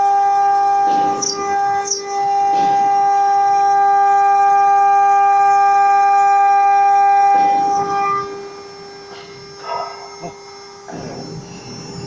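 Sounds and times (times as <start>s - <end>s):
router spindle high-pitched whine: 0.0s - 12.0s
faint hiss of cutting: 7.3s - 12.0s.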